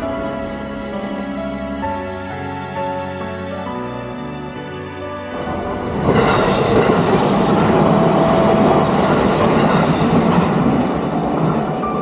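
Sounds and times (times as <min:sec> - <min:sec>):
train wheels clattering on rails: 0:05.4 - 0:12.0.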